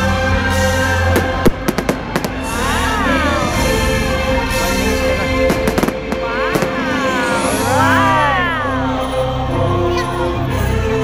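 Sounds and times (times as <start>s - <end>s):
music playing: 0.0s - 11.0s
fireworks bangs: 1.1s - 3.7s, 5.4s - 7.5s.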